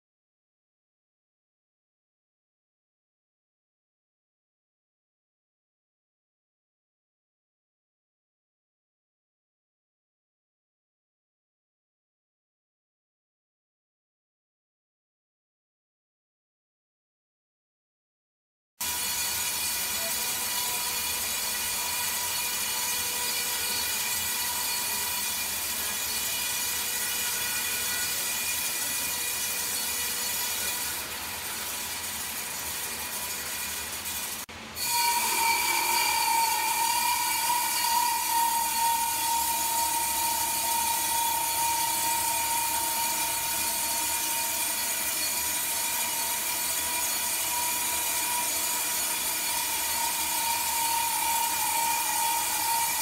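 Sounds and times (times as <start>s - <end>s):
sawmill machinery humming with whine: 18.8s - 53.0s.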